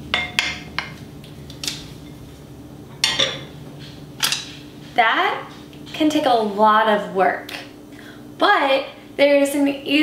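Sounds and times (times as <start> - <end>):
bowl clattering on stove: 0.1 - 1.0, 2.9 - 3.5.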